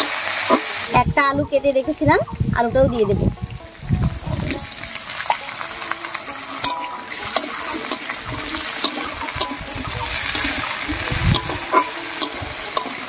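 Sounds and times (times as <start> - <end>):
vegetables sizzling in oil: 0.0 - 2.0, 2.9 - 13.0
spatula scraping a pan: 5.7 - 13.0.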